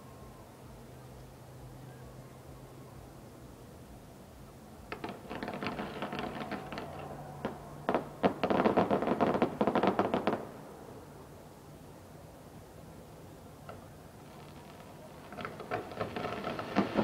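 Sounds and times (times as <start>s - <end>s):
fireworks crackling: 4.8s - 10.7s, 13.6s - 17.0s.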